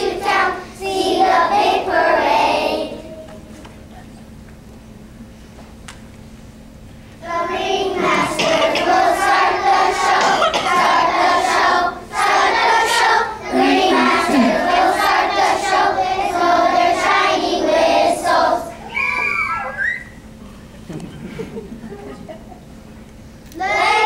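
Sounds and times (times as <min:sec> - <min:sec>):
children singing together: 0:00.0 - 0:03.4, 0:07.2 - 0:19.0, 0:23.6 - 0:24.0.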